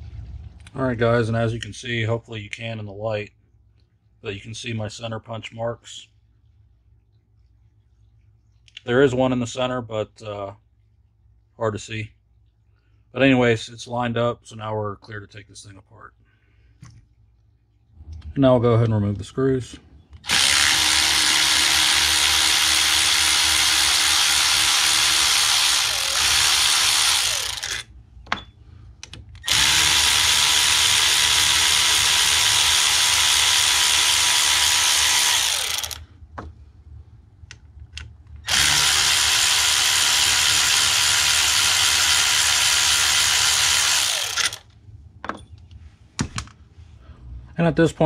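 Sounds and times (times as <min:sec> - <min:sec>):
electric ratchet spinning screws: 0:20.2 - 0:27.9, 0:29.4 - 0:36.0, 0:38.4 - 0:44.7.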